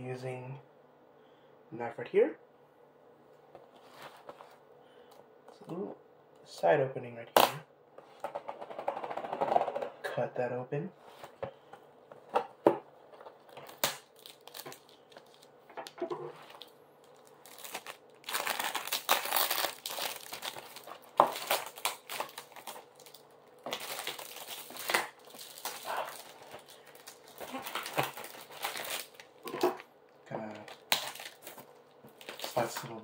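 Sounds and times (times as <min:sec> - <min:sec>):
cardboard crinkling and tearing: 0:13.4 - 0:15.5, 0:16.3 - 0:29.8, 0:30.5 - 0:33.0.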